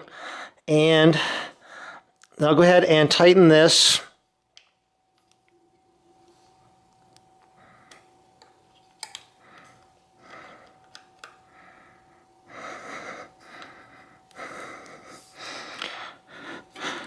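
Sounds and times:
person breathing hard: 0:00.0 - 0:02.1, 0:07.5 - 0:08.2, 0:09.3 - 0:17.0.

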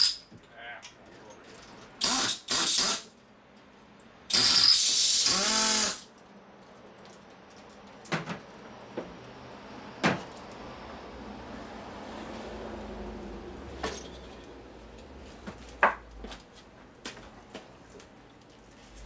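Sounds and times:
hissing air burst: 0:02.0 - 0:03.1, 0:04.3 - 0:06.0
sharp knocks and clunks: 0:15.4 - 0:16.4.

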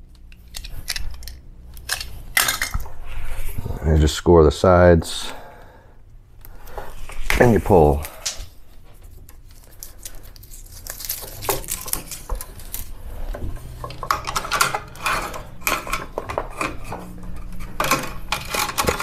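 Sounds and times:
electrical cable scraping and rustling: 0:06.6 - 0:19.0.

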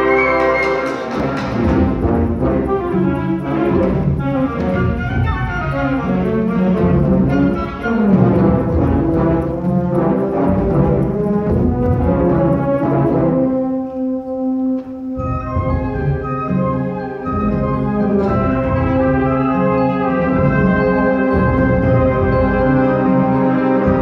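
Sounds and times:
wind band playing: 0:00.0 - 0:24.0.

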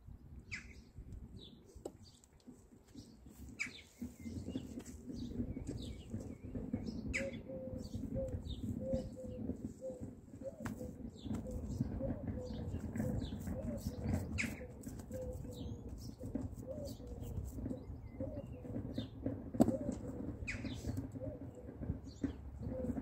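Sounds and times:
small birds chirping: 0:00.4 - 0:23.0
pigeon cooing: 0:05.4 - 0:23.0.

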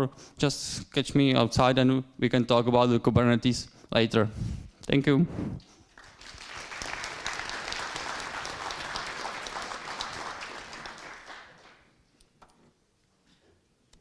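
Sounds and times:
audience applause: 0:06.0 - 0:11.9.

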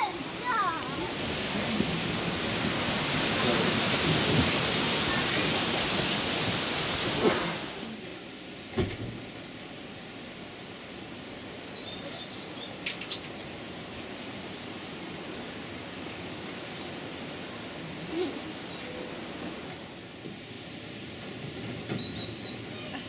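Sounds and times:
small birds chirping: 0:09.2 - 0:17.4, 0:18.1 - 0:23.0.

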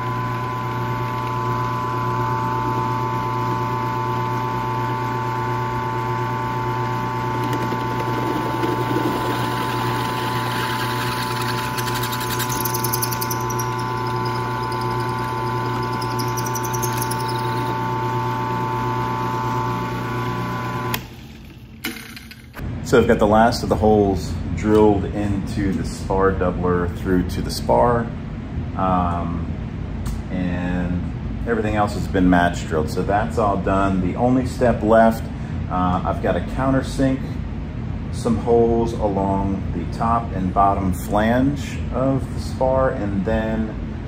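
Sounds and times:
drill bit cutting metal: 0:00.0 - 0:03.3, 0:06.5 - 0:19.1
drill press motor hum: 0:00.0 - 0:22.6.

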